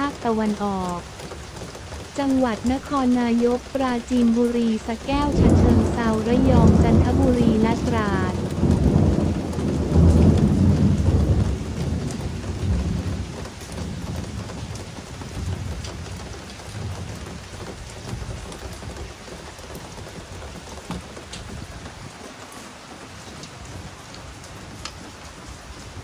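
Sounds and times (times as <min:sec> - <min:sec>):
raindrops ticking: 0:00.0 - 0:26.0
steady rainfall: 0:00.0 - 0:26.0
rolling thunder: 0:05.0 - 0:15.9.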